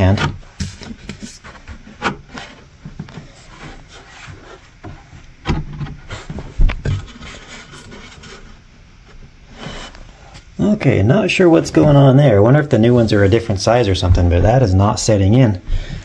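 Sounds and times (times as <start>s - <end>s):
frame scraping against wood: 11.5s - 16.0s
dull thumps: 13.8s - 16.0s.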